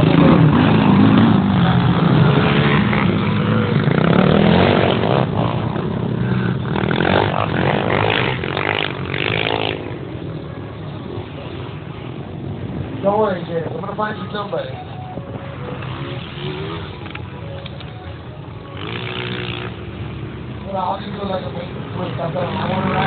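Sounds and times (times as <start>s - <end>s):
quad engine revving: 0.0s - 9.9s, 15.7s - 17.0s, 18.7s - 20.3s, 22.3s - 23.0s.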